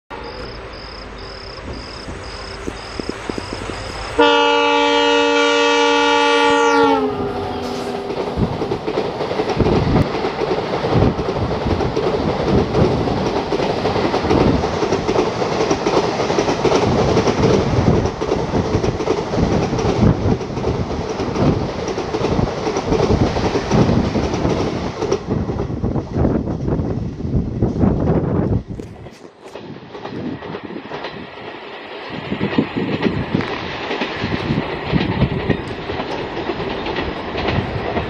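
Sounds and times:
train coaches roaring past: 0:00.1 - 0:38.0
train horn blast: 0:03.3 - 0:08.7
wheels clacking over rail joints: 0:07.3 - 0:26.7, 0:28.8 - 0:38.0.

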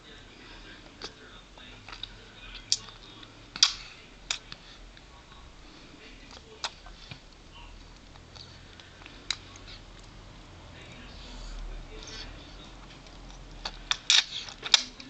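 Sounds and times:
baby making wet smacking clicks: 0:01.9 - 0:03.0.

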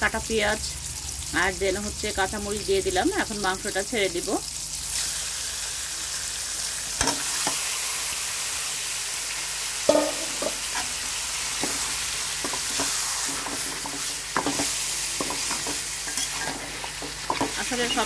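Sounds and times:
meat sizzling in hot oil: 0:00.0 - 0:18.0
metal spatula knocking pan: 0:09.9 - 0:10.6.

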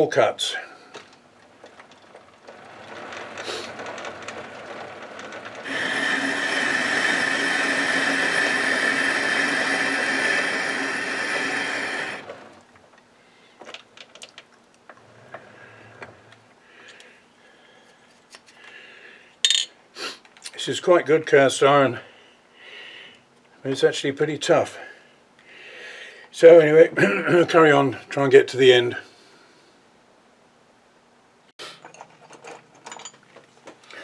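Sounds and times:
metal lathe droning: 0:02.5 - 0:12.6.

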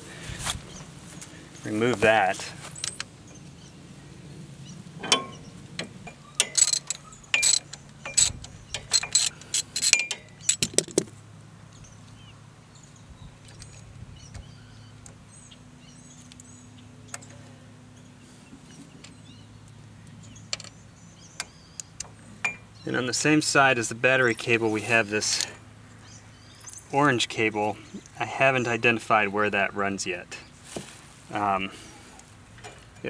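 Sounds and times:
metallic clicks of hand tools: 0:05.0 - 0:11.1.

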